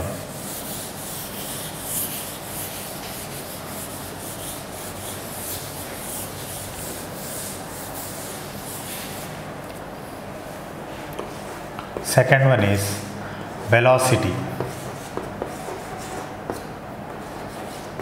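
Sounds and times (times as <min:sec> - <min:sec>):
eraser rubbing on chalkboard: 0:00.0 - 0:09.3, 0:14.1 - 0:18.0.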